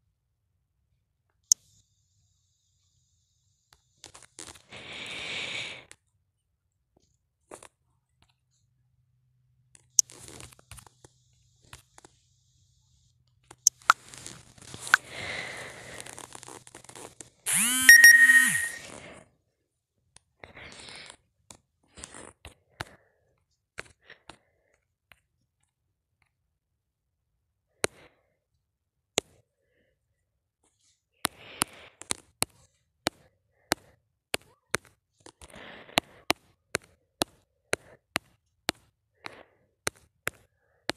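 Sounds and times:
phone notification tone: 17.5 - 18.8.

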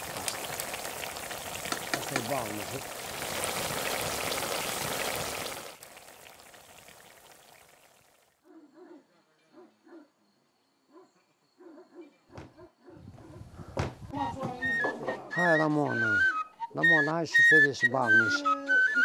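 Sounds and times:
polenta sizzling and bubbling: 0.0 - 8.4.

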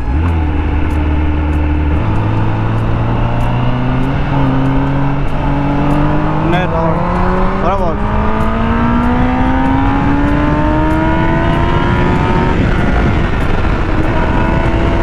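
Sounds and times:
motorcycle engine accelerating: 0.0 - 15.0
wind rushing over microphone: 0.0 - 15.0.

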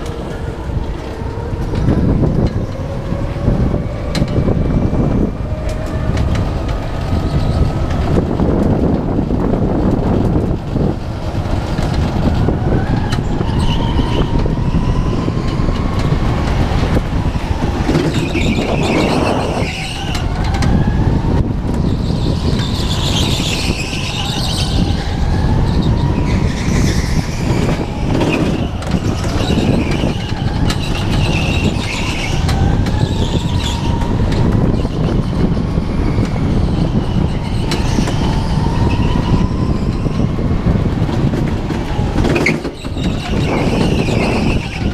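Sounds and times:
go-kart chassis rumble and rattle: 0.0 - 44.9
tyre squeals: 17.8 - 20.7, 21.9 - 40.4, 42.2 - 44.9.

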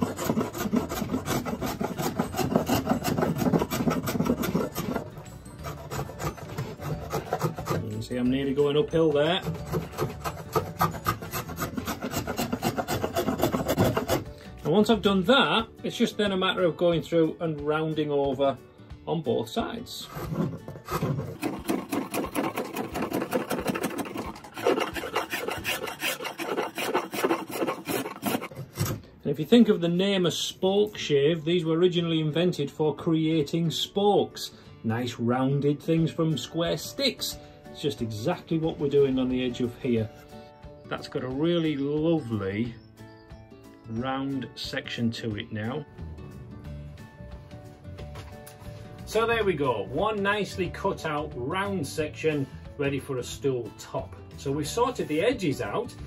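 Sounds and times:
spokeshave scraping wood: 0.0 - 15.2, 19.8 - 29.1.

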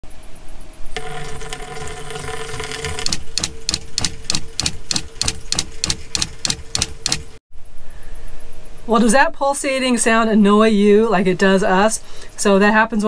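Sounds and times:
water running from faucet: 1.0 - 3.1
water pump chugging: 1.0 - 7.2.

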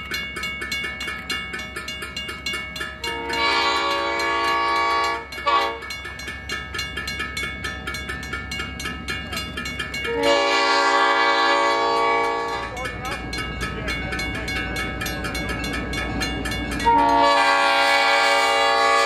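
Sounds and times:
railroad crossing bell ringing: 0.0 - 19.0
train rumbling: 0.0 - 19.0
train horn blasts: 3.0 - 5.9, 10.0 - 12.8, 16.8 - 19.0.

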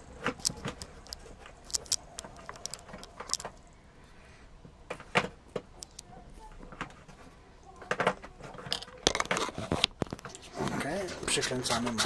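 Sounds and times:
camera gear clicking and rattling: 0.2 - 3.7, 8.5 - 10.5.

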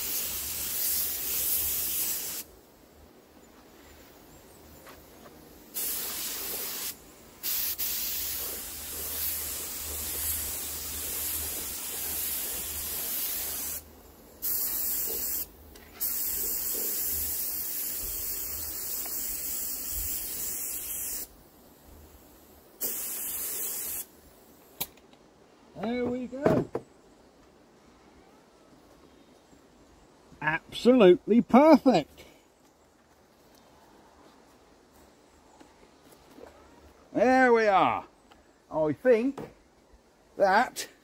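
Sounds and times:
paint spray gun hissing: 0.0 - 2.5, 5.7 - 24.9.

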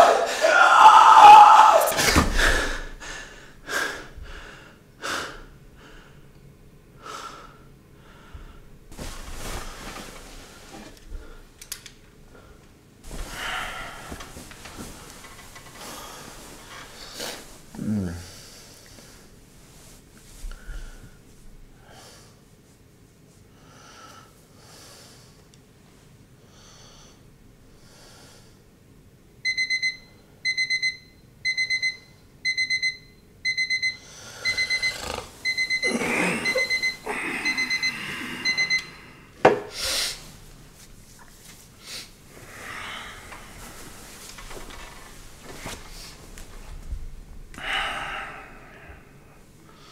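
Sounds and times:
slow breathing: 2.3 - 6.4, 7.0 - 8.7, 12.3 - 19.3, 34.0 - 40.4, 41.8 - 44.5, 47.6 - 49.9
bedding rustling: 8.9 - 11.5, 13.0 - 21.7, 40.2 - 48.5
digital alarm clock beeping: 29.5 - 38.9.

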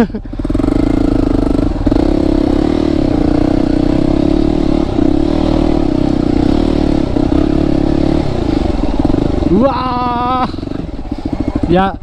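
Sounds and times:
motorcycle engine under throttle: 0.0 - 12.0.

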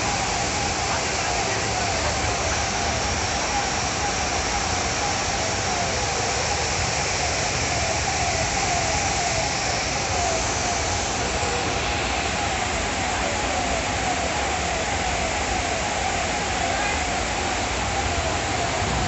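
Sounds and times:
falling siren-like tone: 0.0 - 19.0
floodwater rushing: 0.0 - 19.0.

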